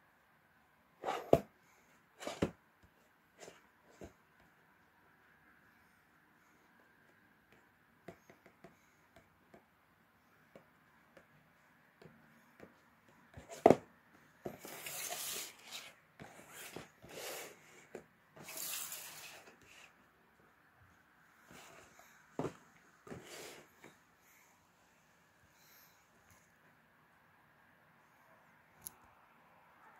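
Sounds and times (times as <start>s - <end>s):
cardboard rubbing and sliding: 2.2s - 2.6s, 14.4s - 20.0s.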